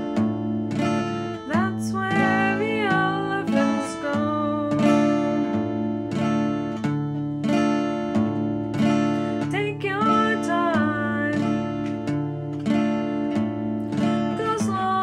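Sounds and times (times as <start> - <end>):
acoustic guitar strumming: 0.0 - 15.0
person singing: 1.4 - 6.1, 9.4 - 12.5, 13.9 - 15.0.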